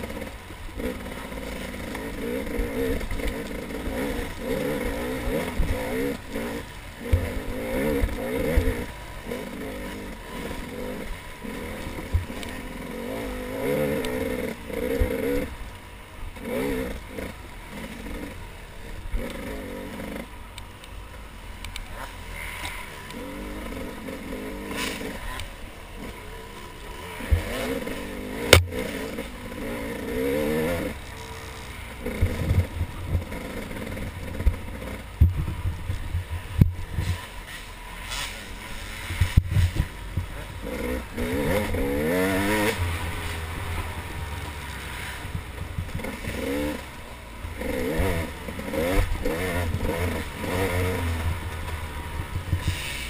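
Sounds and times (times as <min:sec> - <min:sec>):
dirt bike engine revving: 0:00.0 - 0:20.4, 0:21.3 - 0:53.0
knocks and rattles of bike: 0:00.0 - 0:53.0.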